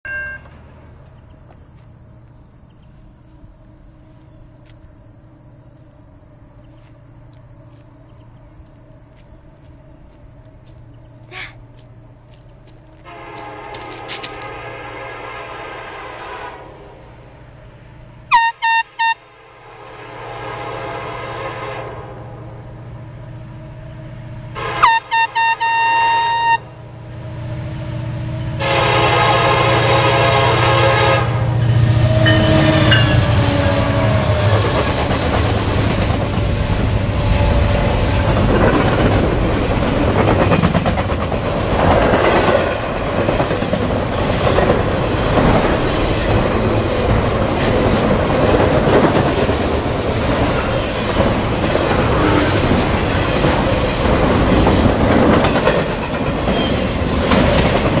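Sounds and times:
train wheels on rails: 0.1 - 18.2, 26.3 - 58.0
locomotive horn: 13.0 - 17.1, 18.3 - 22.6, 24.5 - 26.9, 28.6 - 34.8
handheld air horn blasts: 18.3 - 19.4, 24.6 - 26.7, 28.6 - 34.4.

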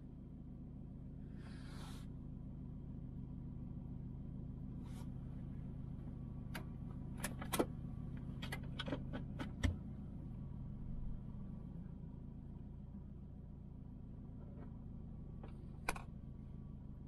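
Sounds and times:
car engine hum from cabin: 0.0 - 17.0
sharp clicks and knocks: 8.3 - 9.8, 15.4 - 16.1.

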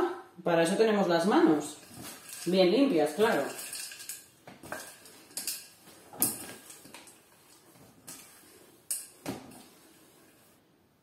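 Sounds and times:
metal bowl clinking: 1.6 - 9.2
hands kneading dough: 4.4 - 10.8.

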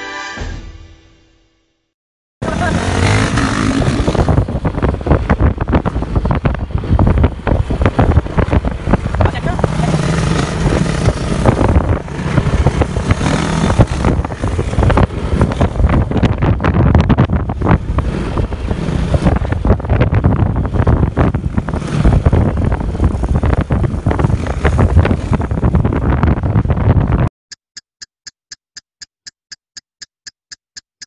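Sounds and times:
motorcycle engine running: 2.4 - 27.2
wind buffeting microphone: 2.4 - 27.3.

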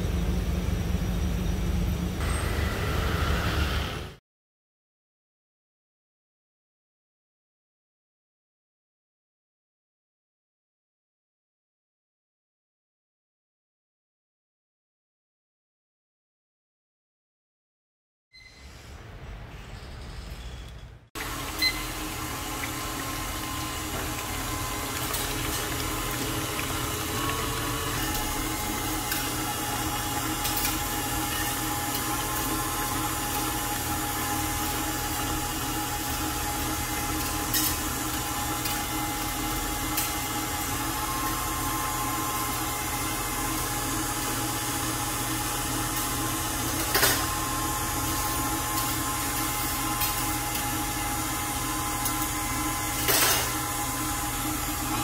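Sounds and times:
stand mixer whisking: 21.2 - 55.0.

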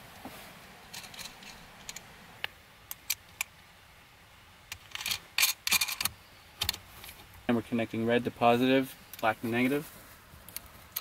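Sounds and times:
rustling: 0.0 - 2.2, 8.4 - 11.0.

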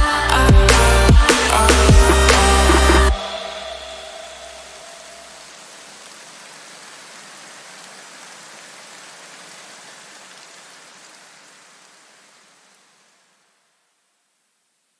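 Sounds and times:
steady hiss: 0.0 - 14.9.

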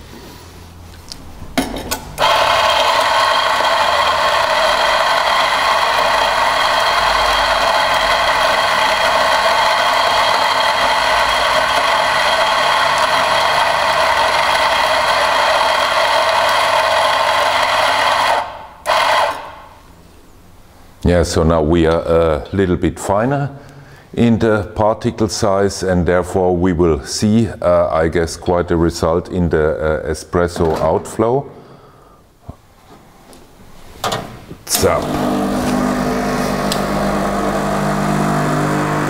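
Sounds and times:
coffee grinder running: 2.2 - 19.7, 34.8 - 39.0.

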